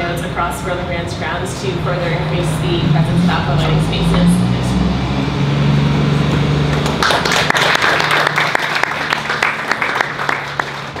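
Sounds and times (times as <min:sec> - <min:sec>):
audience applauding: 0:06.7 - 0:11.0.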